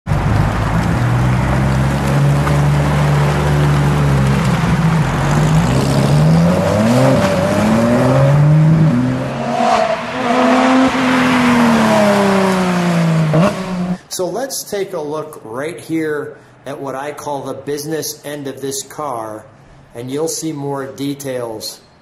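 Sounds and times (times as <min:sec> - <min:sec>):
car engine revving: 0:00.1 - 0:14.0.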